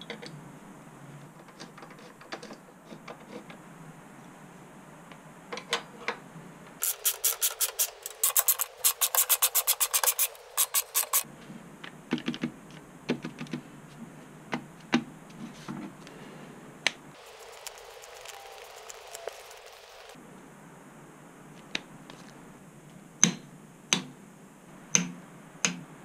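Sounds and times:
socket ratchet clicking: 6.8s - 11.2s.

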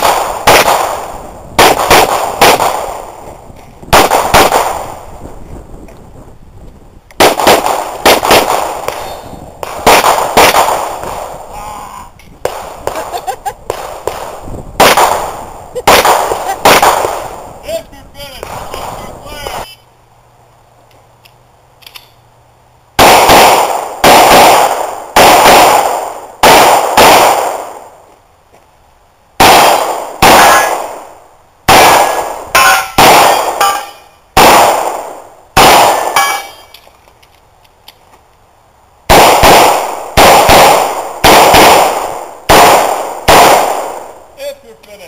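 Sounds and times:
gunshot echo: 0.0s - 3.2s, 3.9s - 5.0s, 7.2s - 11.4s, 13.7s - 17.4s, 23.0s - 27.9s, 29.4s - 36.7s, 39.1s - 44.2s
handgun shots: 39.1s - 44.0s.

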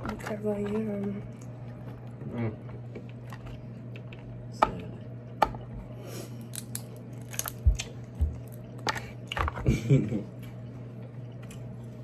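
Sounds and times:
crab shells cracking: 6.4s - 9.6s.

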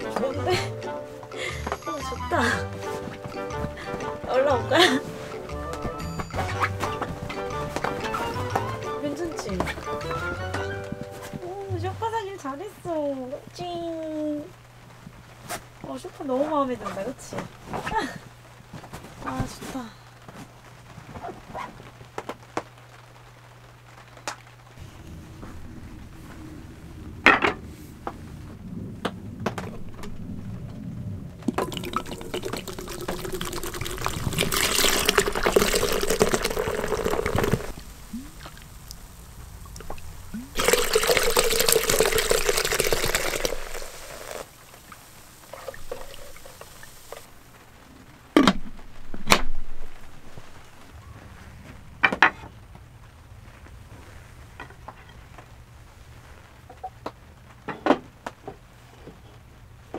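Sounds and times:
fizzing liquid pouring over ice: 31.5s - 47.3s.

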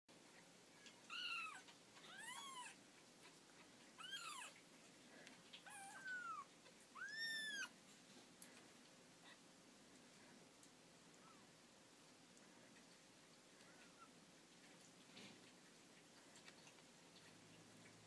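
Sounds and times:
kittens mewing: 5.5s - 7.8s.

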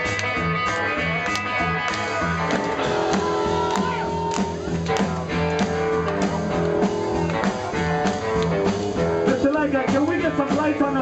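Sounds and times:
drums steady beat: 0.0s - 11.0s
electric guitar: 0.0s - 11.0s
repeating bass notes: 0.0s - 11.0s.

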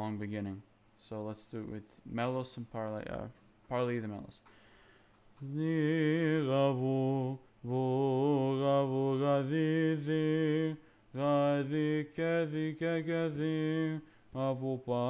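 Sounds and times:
man chanting: 5.4s - 15.0s.

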